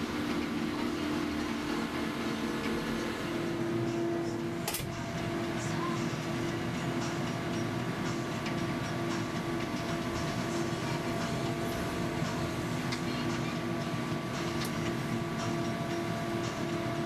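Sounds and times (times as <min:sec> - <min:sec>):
machine hum with pulsing tone: 0:00.0 - 0:17.0.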